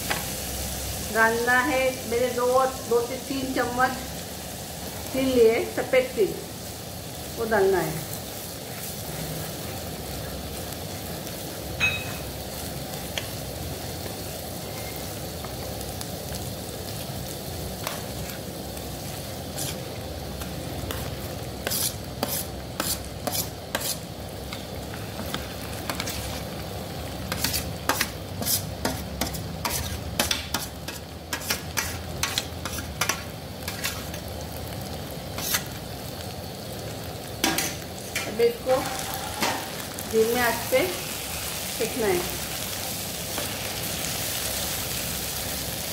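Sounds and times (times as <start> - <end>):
paste sizzling in hot oil: 0.0 - 45.9
spatula scraping a pan: 17.8 - 19.9, 20.9 - 24.0, 25.2 - 26.5, 27.3 - 34.2, 35.3 - 35.8.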